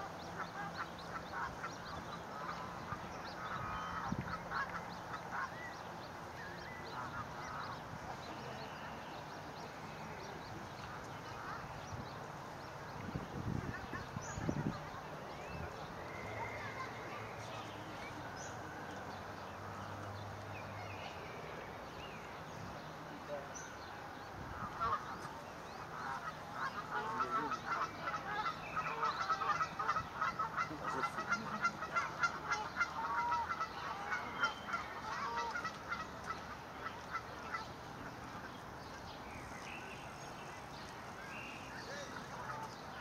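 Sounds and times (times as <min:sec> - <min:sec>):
swans calling: 0:24.6 - 0:38.6.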